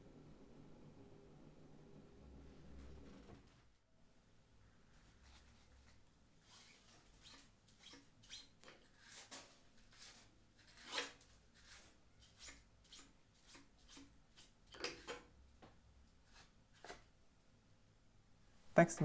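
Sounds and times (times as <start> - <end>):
soft paintbrush strokes: 4.6 - 7.5.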